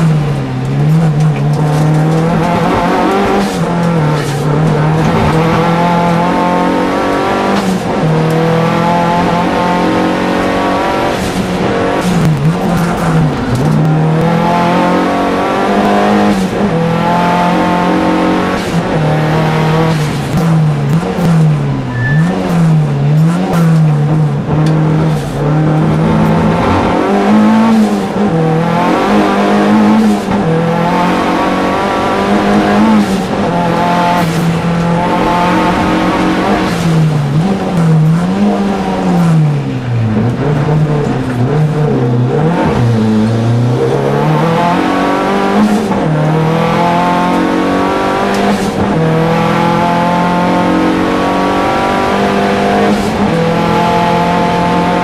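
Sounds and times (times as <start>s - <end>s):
racing engine at high revs: 0.0s - 55.0s.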